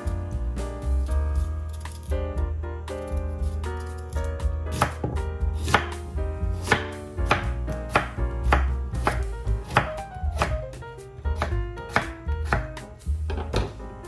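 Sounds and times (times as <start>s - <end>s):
light background music: 0.0s - 14.0s
knife chopping on wooden board: 4.7s - 6.0s, 6.6s - 10.7s, 11.3s - 13.8s.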